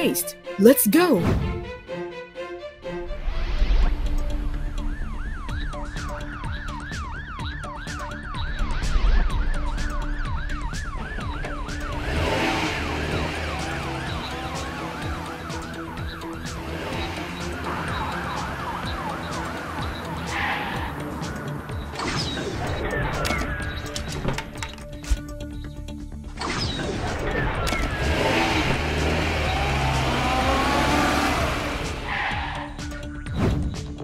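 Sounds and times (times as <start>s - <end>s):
background music: 0.0s - 34.0s.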